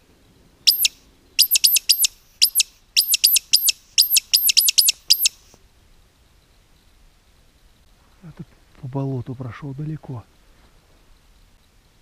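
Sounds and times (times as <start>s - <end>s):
bird caller high squeaks: 0.7s - 5.5s.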